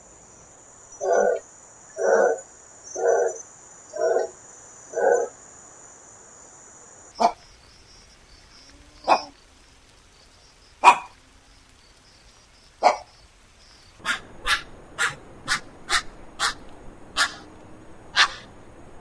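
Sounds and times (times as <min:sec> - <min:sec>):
heron calling: 0:07.2 - 0:10.0, 0:10.8 - 0:17.5, 0:18.1 - 0:18.5.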